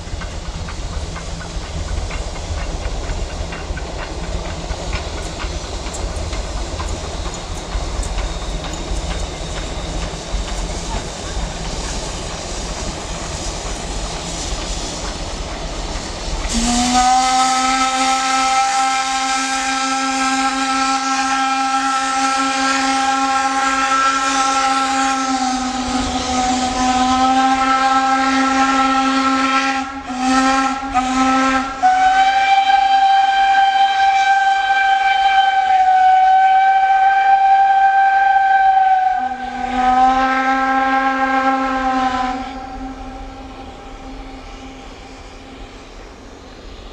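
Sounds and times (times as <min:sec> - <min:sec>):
steam locomotive rumbling past: 0:00.0 - 0:46.9
steam whistle blowing: 0:16.4 - 0:46.0.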